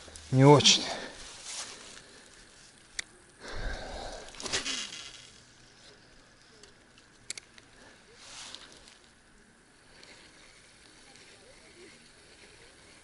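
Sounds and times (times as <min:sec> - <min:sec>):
breathy exhale: 0:03.4 - 0:04.6.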